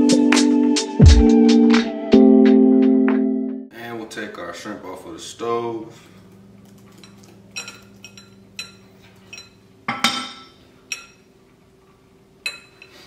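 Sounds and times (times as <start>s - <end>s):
metal spoon clinking on pan and bowl: 6.9s - 11.4s, 12.4s - 13.0s.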